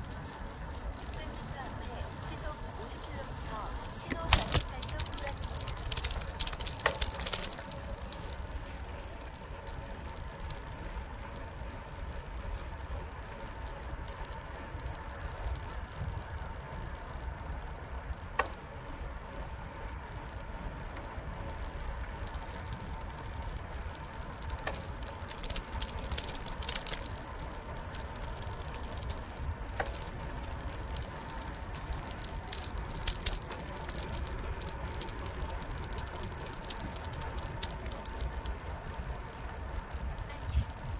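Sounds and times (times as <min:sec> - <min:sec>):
bicycle tyres rumbling on pavement: 0:00.0 - 0:40.9
bike rattling over bumps: 0:00.0 - 0:40.9.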